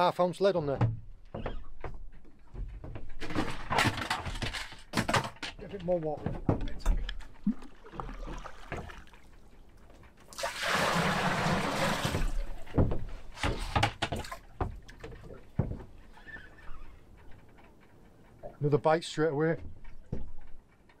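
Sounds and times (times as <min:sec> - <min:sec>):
water splashing into bucket: 0:07.4 - 0:09.3, 0:10.3 - 0:12.8.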